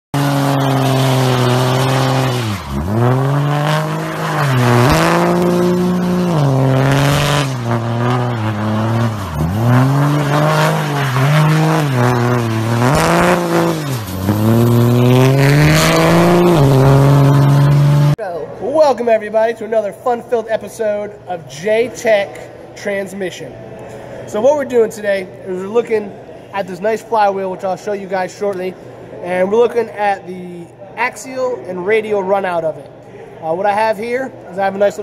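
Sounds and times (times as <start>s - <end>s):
truck engine revving: 0.1s - 18.2s.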